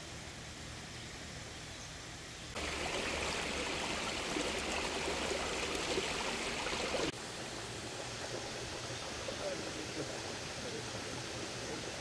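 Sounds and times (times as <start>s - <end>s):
creek splashing over stones: 2.5s - 12.0s.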